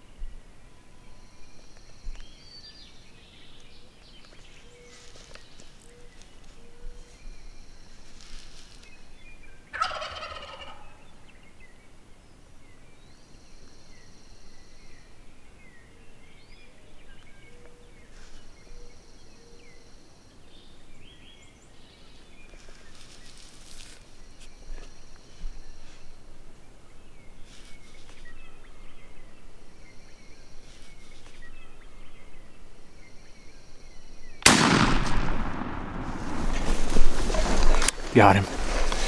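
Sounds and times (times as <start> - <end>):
turkey gobbling: 9.7 - 10.9
small birds chirping: 13.9 - 34.5.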